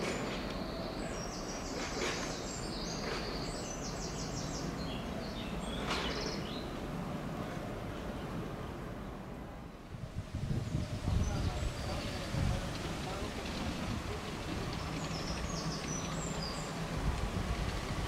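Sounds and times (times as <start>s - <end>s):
songbird chirping and trilling: 0.0s - 6.8s, 10.6s - 16.8s.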